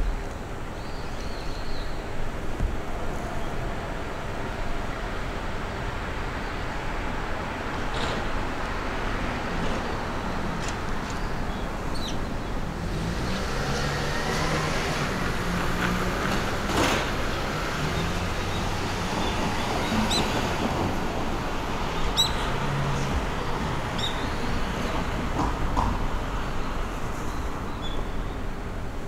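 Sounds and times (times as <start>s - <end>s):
road traffic rumble: 0.0s - 29.0s
vehicle engine passing: 12.8s - 19.1s.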